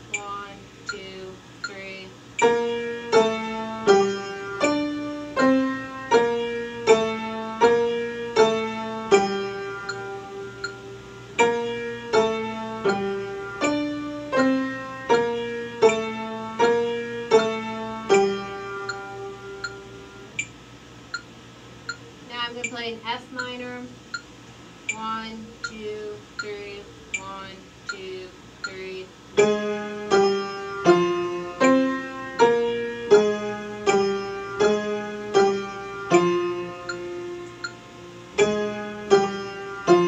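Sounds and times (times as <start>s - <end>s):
faint metronome clicks: 0.1s - 3.3s, 8.4s - 10.8s, 12.1s - 13.8s, 15.8s - 16.1s, 18.1s - 29.5s, 36.8s - 37.8s
slow minor-key piano melody: 2.3s - 21.2s, 29.3s - 40.0s.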